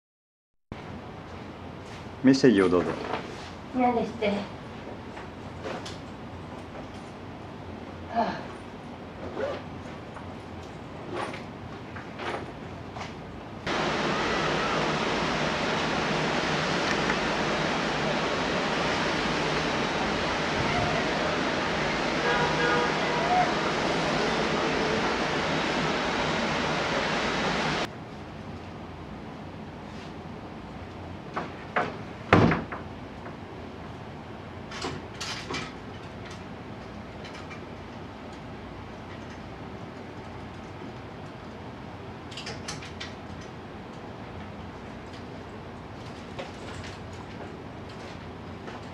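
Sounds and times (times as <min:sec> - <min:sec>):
steady outdoor rushing noise: 0:13.6 - 0:27.9.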